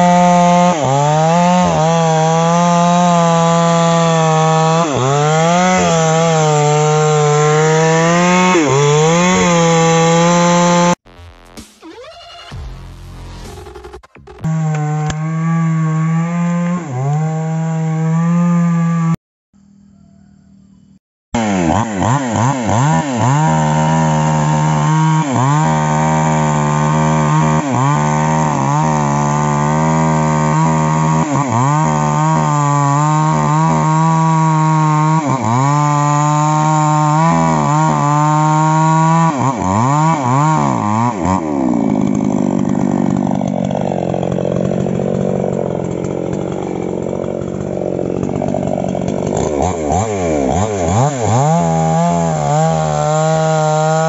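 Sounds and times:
chainsaw cutting into wood: 0:00.0 - 0:11.0, 0:14.3 - 0:19.2, 0:21.4 - 0:54.0.

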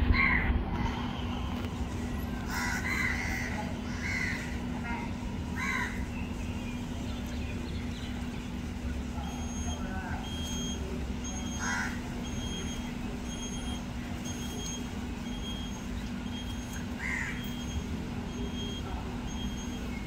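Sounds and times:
low hum: 0:00.0 - 0:09.5
crow cawing: 0:02.5 - 0:04.6, 0:05.6 - 0:06.0, 0:11.6 - 0:12.0, 0:17.0 - 0:17.6
high electronic beeps: 0:09.2 - 0:20.0.

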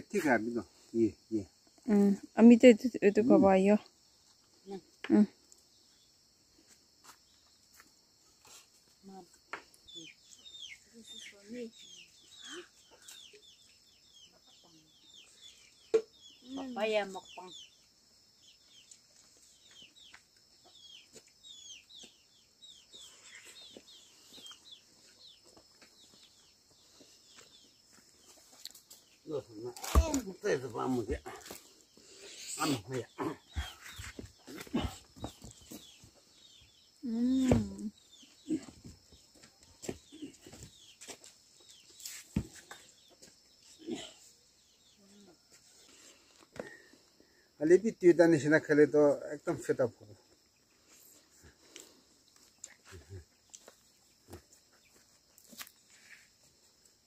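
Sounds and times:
faint animal chirps and clucks: 0:08.3 - 0:41.1, 0:41.7 - 0:46.4.

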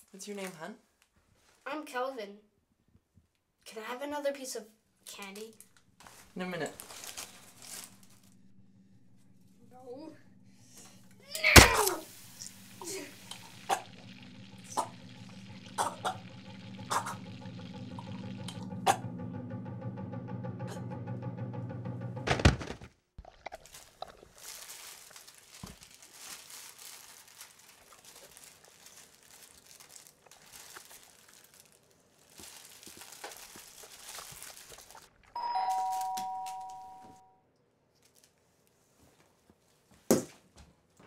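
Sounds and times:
candy wrappers crinkling: 0:05.2 - 0:08.3, 0:23.2 - 0:35.3
thump: 0:19.6 - 0:22.9
two-tone doorbell chime: 0:35.4 - 0:37.4.

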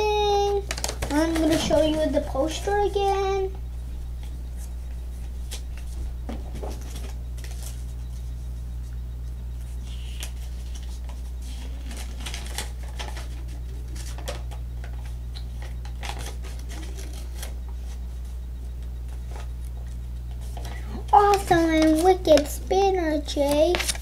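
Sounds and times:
low electrical hum: 0:00.0 - 0:24.0
paper rustling: 0:00.5 - 0:08.4, 0:09.6 - 0:18.2, 0:20.3 - 0:22.6, 0:23.2 - 0:24.0.

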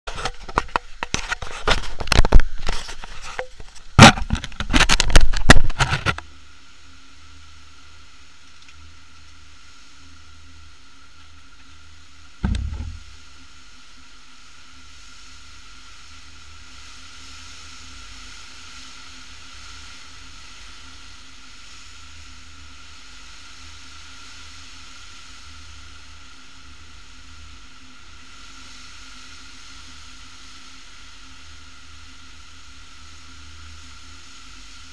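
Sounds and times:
faint hiss: 0:00.2 - 0:34.9
camera handling knocks: 0:12.4 - 0:13.1
dull thump: 0:12.4 - 0:13.1.

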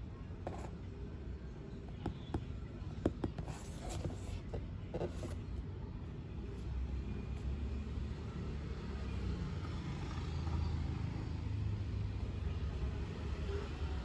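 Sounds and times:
cardboard box taps and scrapes: 0:03.1 - 0:05.4.

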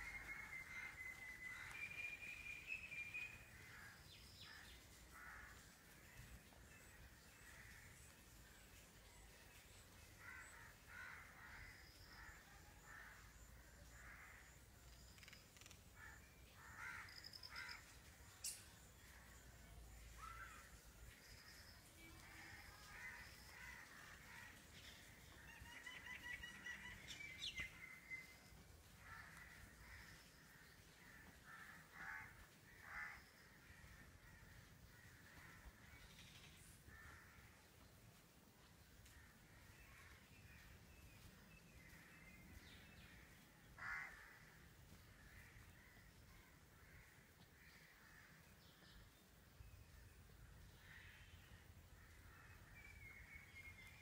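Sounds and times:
crows cawing: 0:03.5 - 0:06.0, 0:10.2 - 0:14.6, 0:15.6 - 0:17.9, 0:22.4 - 0:24.7, 0:28.9 - 0:36.1, 0:36.9 - 0:37.6, 0:43.2 - 0:48.4.

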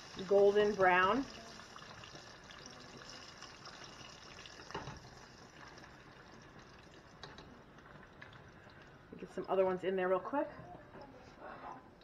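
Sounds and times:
chicken frying in hot oil: 0:00.0 - 0:09.0.

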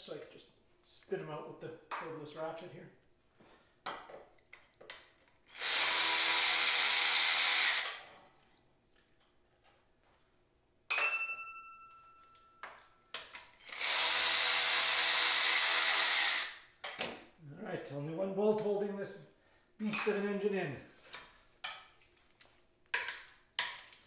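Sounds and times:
metallic clink ringing: 0:10.9 - 0:12.6
cordless ratchet running: 0:13.6 - 0:16.6.

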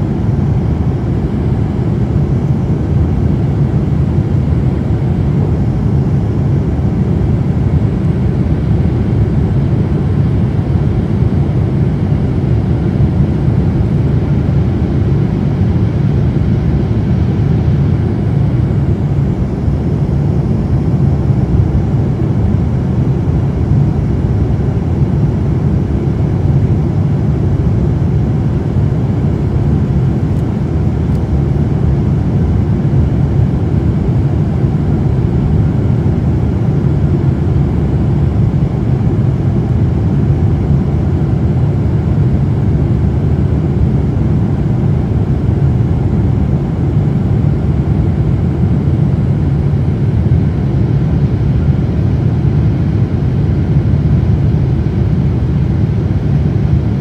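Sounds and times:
jet engines heard from cabin: 0:00.0 - 0:57.0.

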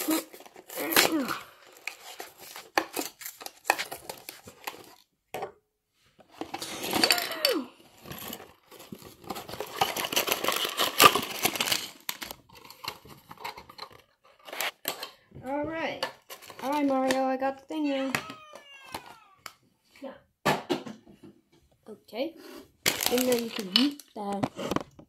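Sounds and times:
cardboard box tearing: 0:00.0 - 0:04.8
plastic packaging crinkling: 0:08.0 - 0:14.0, 0:22.8 - 0:24.4.

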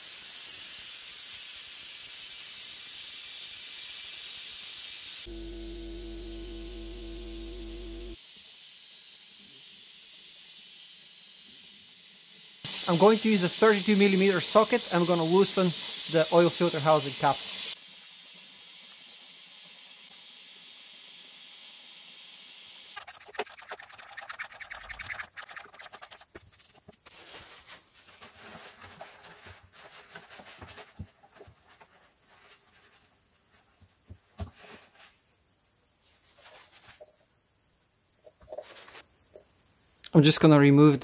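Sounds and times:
steady hiss: 0:12.5 - 0:22.8
paper rustling: 0:23.3 - 0:35.3, 0:36.0 - 0:37.3.

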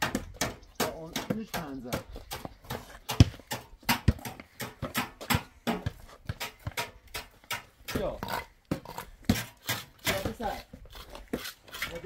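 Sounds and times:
irregular knocks and taps: 0:00.0 - 0:08.1.

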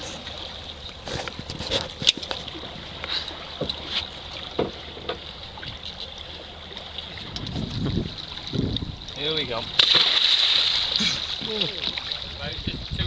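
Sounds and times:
low hum of boat: 0:00.0 - 0:13.0
clicks and knocks of fish handling: 0:00.9 - 0:06.1.

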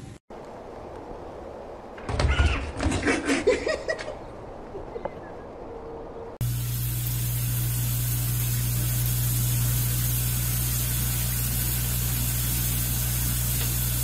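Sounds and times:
steady hiss: 0:06.4 - 0:14.0.

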